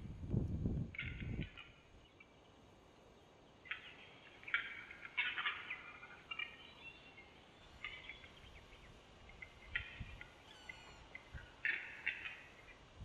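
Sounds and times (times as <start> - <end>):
bird clicking and rasping song: 3.6 - 12.8.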